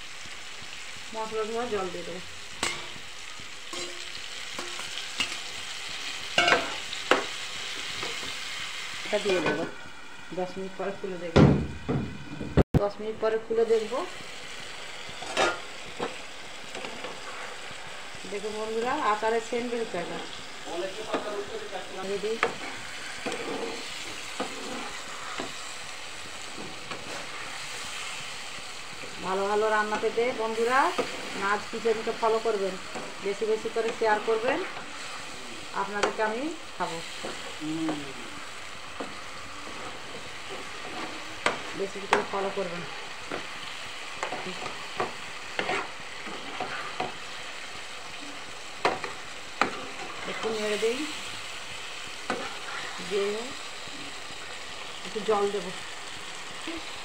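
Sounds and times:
masala gravy sizzling: 0.0 - 57.0
spatula scraping a pan: 16.8 - 17.7, 22.1 - 25.8, 26.4 - 28.3, 30.5 - 32.1, 36.9 - 47.4, 48.8 - 50.8, 52.2 - 53.1.

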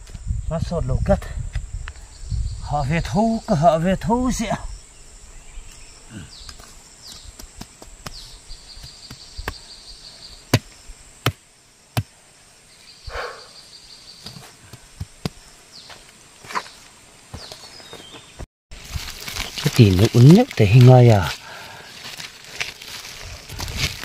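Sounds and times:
insect trilling: 18.8 - 24.0.

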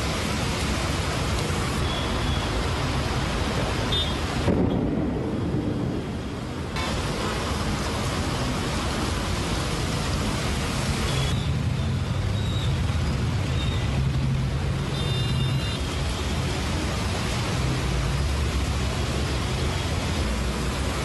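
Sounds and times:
heavy rain hissing: 0.0 - 21.0
traffic rumble on wet roads: 0.0 - 21.0.

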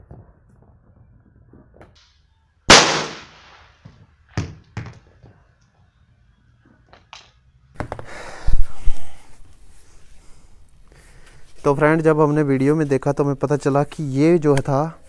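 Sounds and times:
revolver gunshot with echo: 2.7 - 3.8.

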